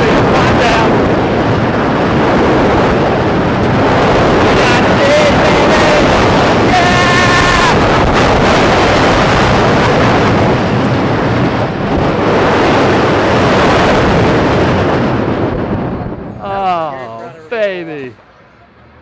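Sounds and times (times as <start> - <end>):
roller coaster train rumbling: 0.0 - 19.0
wind buffeting microphone: 0.0 - 19.0
person yelling: 4.6 - 7.8, 16.4 - 18.0.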